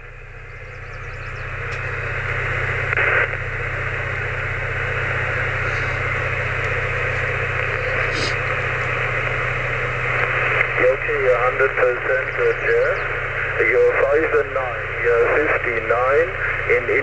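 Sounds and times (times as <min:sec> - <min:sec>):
radio receiver static hiss: 0:00.0 - 0:17.0
steady low hum: 0:00.0 - 0:17.0.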